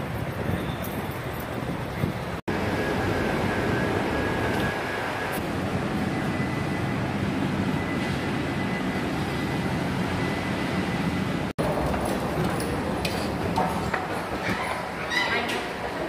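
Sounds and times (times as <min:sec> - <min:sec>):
continuous rumbling noise: 0:00.0 - 0:16.0.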